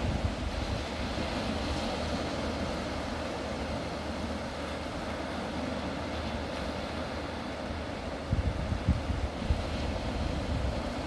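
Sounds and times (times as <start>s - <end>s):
wind rumbling on microphone: 0.0s - 3.0s, 7.8s - 11.0s
small waves breaking on beach: 0.0s - 11.0s.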